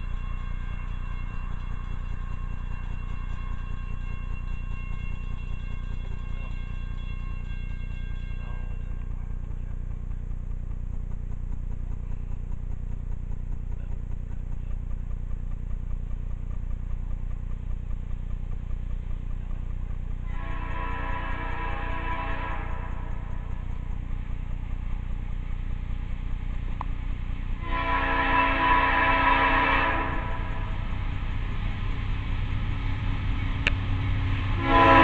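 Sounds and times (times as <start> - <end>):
diesel locomotive air horn: 0.0 - 10.0, 19.5 - 24.6, 27.5 - 35.0
low rumble: 0.0 - 35.0.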